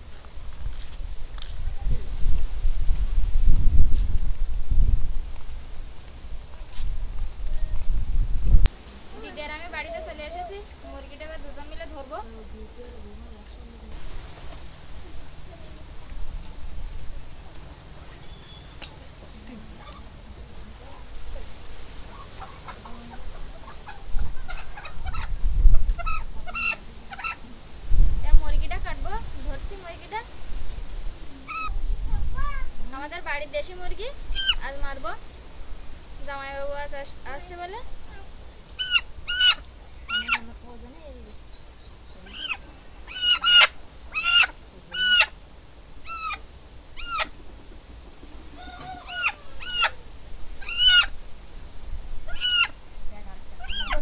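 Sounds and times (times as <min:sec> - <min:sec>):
chicken calling: 0:22.0 - 0:27.5, 0:31.5 - 0:31.8, 0:34.3 - 0:34.7, 0:38.0 - 0:40.6, 0:42.2 - 0:45.4, 0:46.0 - 0:51.2, 0:52.2 - 0:52.8, 0:53.6 - 0:54.0
hen squawking in distress: 0:22.1 - 0:27.4, 0:38.1 - 0:40.5, 0:42.3 - 0:45.3, 0:46.0 - 0:46.4, 0:47.0 - 0:47.3, 0:48.5 - 0:50.0, 0:50.6 - 0:51.2, 0:52.3 - 0:52.8, 0:53.6 - 0:54.0.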